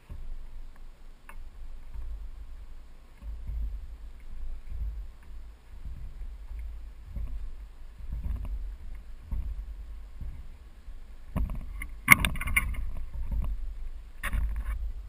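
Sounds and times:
wind rumble on microphone: 0:00.0 - 0:15.0
sharp clatter: 0:03.2 - 0:15.0.

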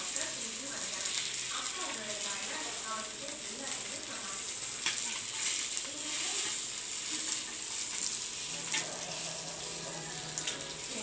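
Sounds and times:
fish sizzling in oil: 0:00.0 - 0:11.0
steel spatula clicks and scrapes: 0:04.8 - 0:05.8.

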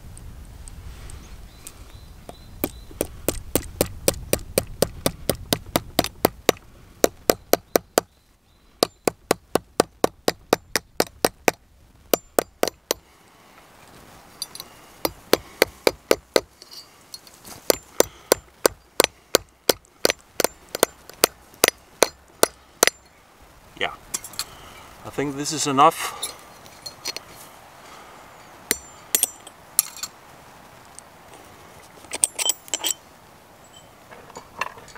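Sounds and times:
hammer tapping on metal: 0:08.8 - 0:13.0.

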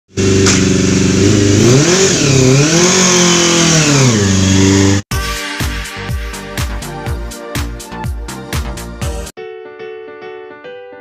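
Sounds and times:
motorcycle engine idling and revving: 0:00.1 - 0:05.1.

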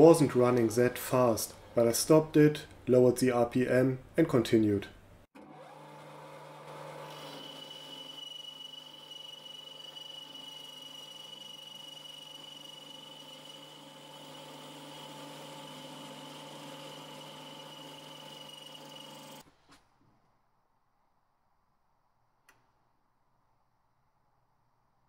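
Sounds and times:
metal lathe humming with high whine: 0:07.1 - 0:19.4.

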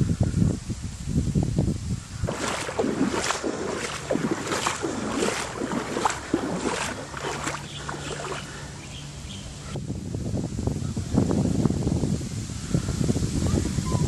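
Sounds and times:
water splashing and sloshing: 0:02.2 - 0:09.8.

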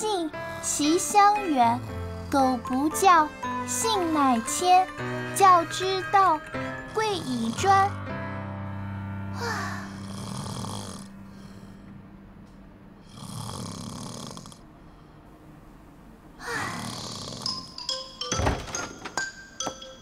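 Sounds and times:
cartoon girl snoring: 0:06.6 - 0:08.0, 0:09.4 - 0:11.8, 0:13.0 - 0:14.6, 0:16.4 - 0:17.8.

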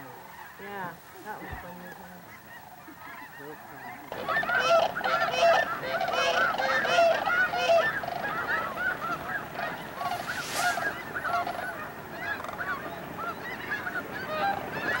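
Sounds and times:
geese honking: 0:00.0 - 0:15.0.

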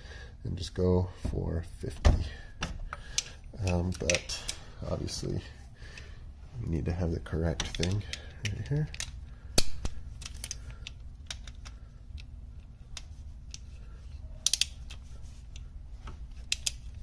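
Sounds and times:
torque wrench clicking on bolt: 0:14.4 - 0:15.0, 0:16.4 - 0:17.0.

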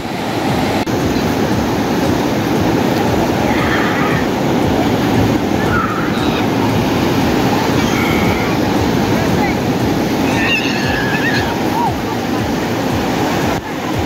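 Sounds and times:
ocean waves breaking: 0:00.0 - 0:14.0.

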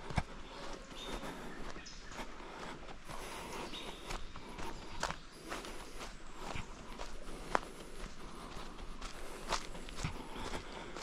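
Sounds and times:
footsteps on trail: 0:00.0 - 0:11.0.

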